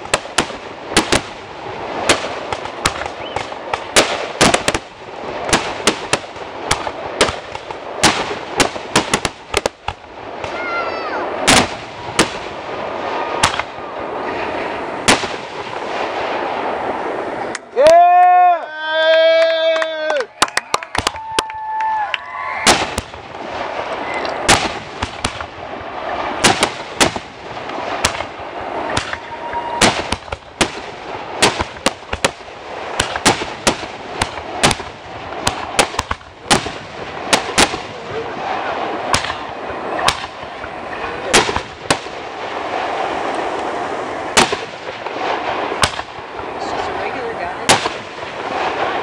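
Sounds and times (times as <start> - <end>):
firework shells bursting: 0.0 - 17.6, 22.6 - 49.0.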